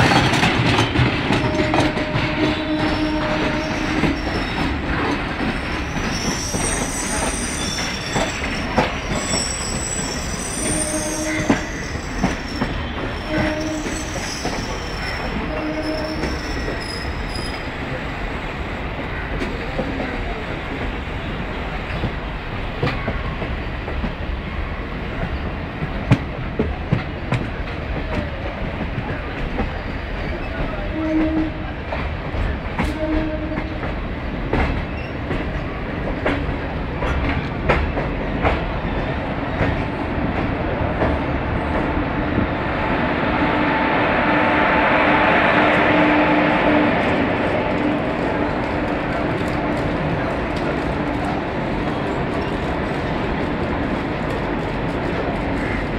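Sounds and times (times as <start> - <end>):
train rumble: 0.0 - 55.9
train wheels clicking over rail joints: 25.1 - 42.0.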